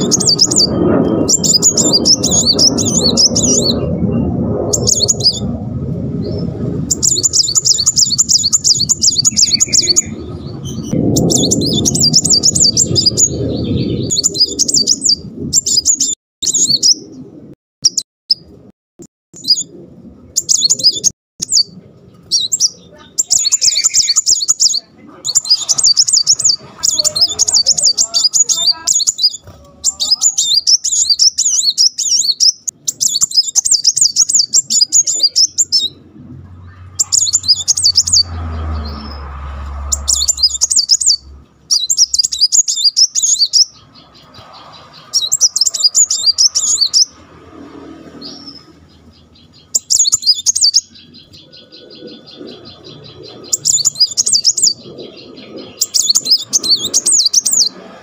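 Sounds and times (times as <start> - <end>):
sunbird chattering trills: 0.0 - 5.5, 6.3 - 17.1, 20.4 - 36.0, 36.6 - 38.4, 39.9 - 47.2, 48.2 - 57.8.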